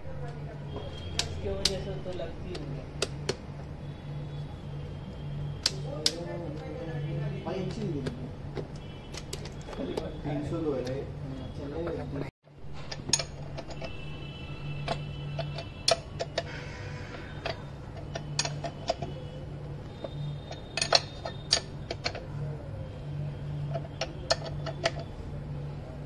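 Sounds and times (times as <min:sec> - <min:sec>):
metal clicks and clinks: 0:12.7 - 0:16.5, 0:17.2 - 0:22.4, 0:23.6 - 0:25.2.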